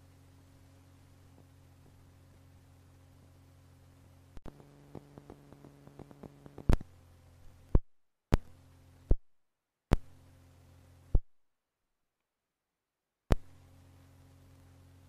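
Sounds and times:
low electrical hum: 0.0s - 9.2s, 9.9s - 11.2s, 13.3s - 15.0s
loud sharp pops: 4.4s - 6.9s, 9.9s - 10.2s, 13.3s - 13.6s
small clicks: 4.4s - 7.0s.

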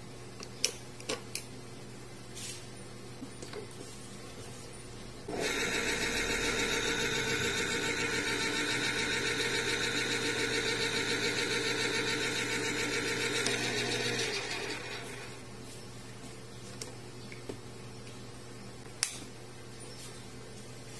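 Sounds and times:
electric can opener whirring: 5.3s - 15.5s.

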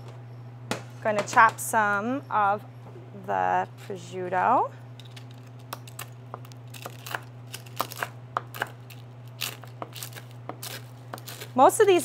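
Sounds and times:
steady low hum: 0.0s - 12.0s
crisp meat crackling: 4.9s - 12.0s.

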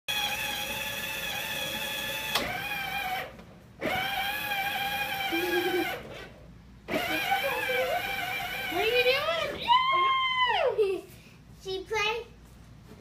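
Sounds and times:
toy car electric motor whining: 0.1s - 6.3s, 6.9s - 9.4s.

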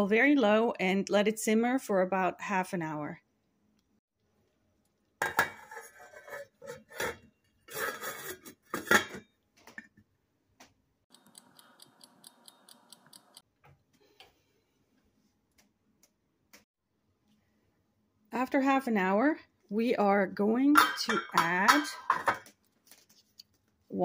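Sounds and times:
stove timer clicks: 11.1s - 13.4s
pot lid clanking: 20.8s - 22.4s.

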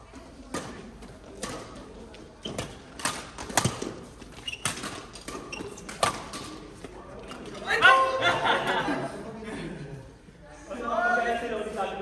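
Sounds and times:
rackets hitting shuttlecock: 0.4s - 6.7s.

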